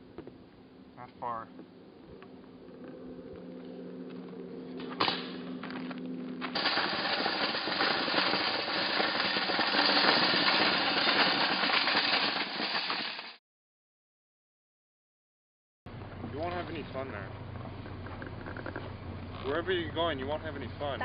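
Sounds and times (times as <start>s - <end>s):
shopping cart rattling on gravel: 6.4s - 13.4s.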